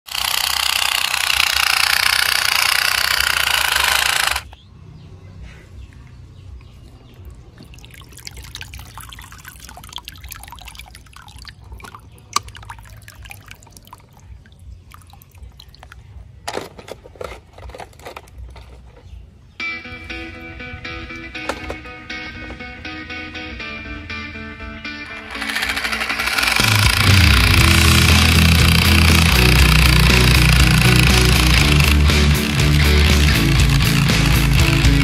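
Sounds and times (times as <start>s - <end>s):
plastic toy clicks and knocks: 0.1s - 4.6s, 16.4s - 19.0s, 25.3s - 35.0s
small splashes in puddle: 7.3s - 16.1s.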